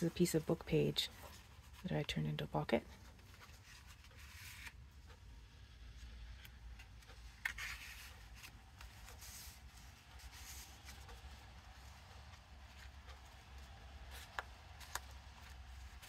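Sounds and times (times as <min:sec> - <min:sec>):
paper pages rustling: 0:02.9 - 0:05.1, 0:06.0 - 0:16.0.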